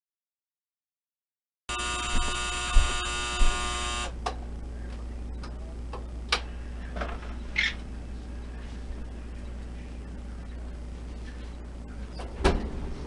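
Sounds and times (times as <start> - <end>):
small electric motor whirring: 1.7 - 4.1.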